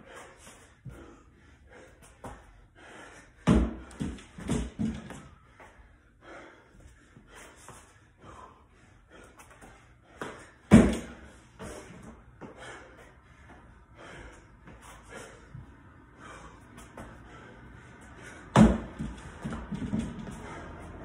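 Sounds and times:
heavy rhythmic breathing: 0.0 - 21.0
body thudding on floor: 10.7 - 11.2.

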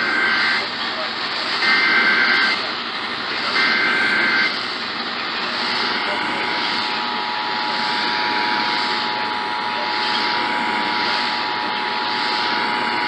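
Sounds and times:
two-tone attention signal: 0.0 - 0.7, 1.6 - 2.7, 3.4 - 4.6
two-tone data screech: 0.0 - 0.7, 1.6 - 2.7, 3.3 - 4.7, 5.5 - 13.0
radio hiss: 0.0 - 13.0.

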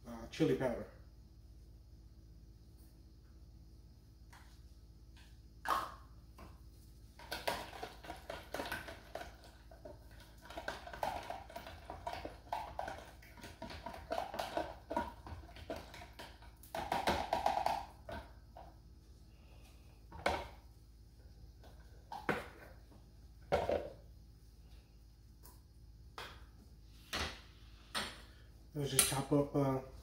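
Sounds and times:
whisk beating liquid: 7.4 - 17.7.

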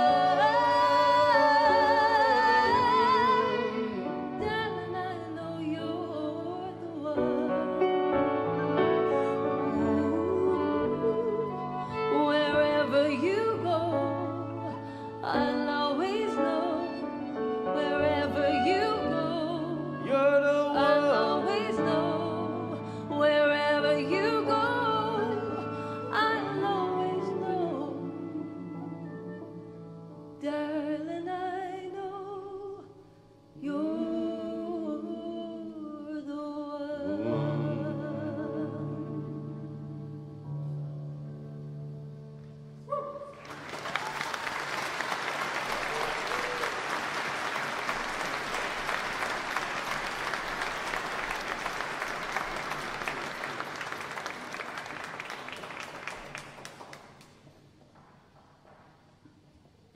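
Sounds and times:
woman singing with vibrato: 0.0 - 7.7, 9.4 - 29.6, 33.6 - 40.3.

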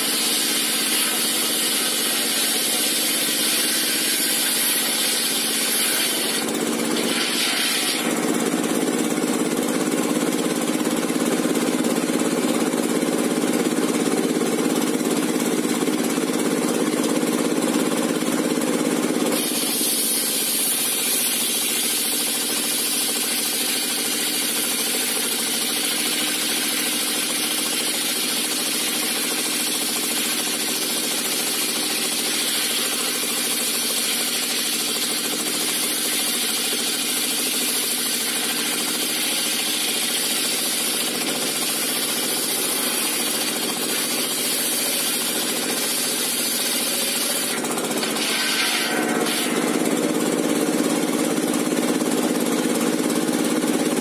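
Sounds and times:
saw blade cutting log: 0.0 - 54.0
diesel engine running: 48.9 - 54.0.

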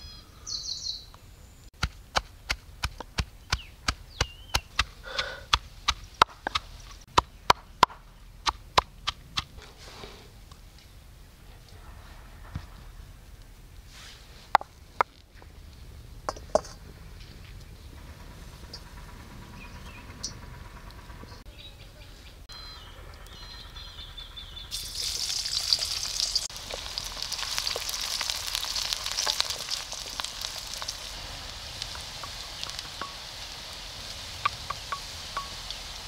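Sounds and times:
onions sizzling in hot oil: 24.7 - 36.0.

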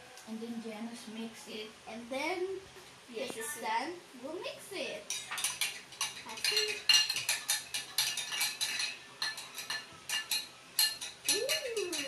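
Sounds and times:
metal whisk clicking against glass bowl: 5.4 - 12.0.

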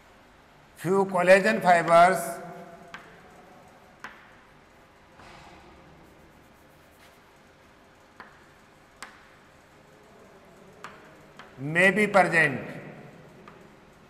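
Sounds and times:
chalk tapping on board: 2.9 - 3.3, 6.0 - 7.4, 8.1 - 9.4, 10.8 - 11.6
chalk scratching on blackboard: 6.0 - 7.6.

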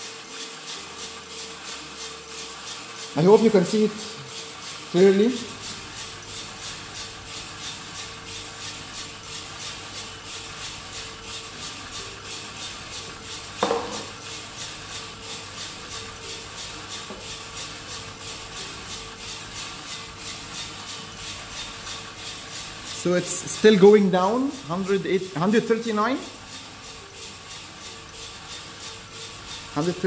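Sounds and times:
beans tumbling in roaster drum: 0.0 - 30.0
roaster fan hum: 0.0 - 30.0.

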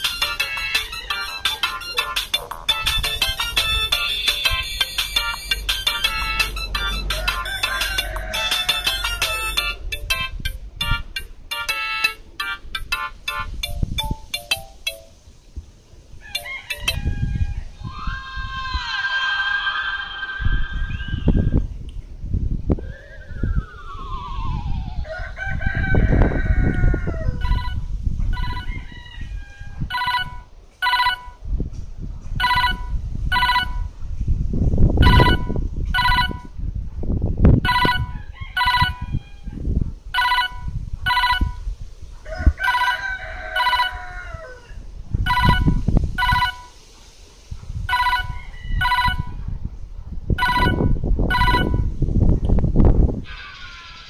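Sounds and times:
mobile phone ringtone beeps: 0.0 - 7.6, 8.4 - 15.1, 16.4 - 17.0, 27.4 - 27.8, 28.4 - 28.7, 29.9 - 31.4, 32.4 - 33.9, 35.0 - 36.4, 37.7 - 39.0, 40.2 - 41.6, 43.6 - 44.0, 45.3 - 46.7, 47.9 - 49.3, 50.4 - 51.9
rooster crowing: 0.5 - 1.7, 6.8 - 9.8, 16.2 - 21.6, 24.9 - 31.2, 37.7 - 39.6, 42.2 - 46.7, 47.9 - 49.3
wind rumbling on microphone: 2.3 - 11.5, 12.2 - 14.4, 15.2 - 54.0.

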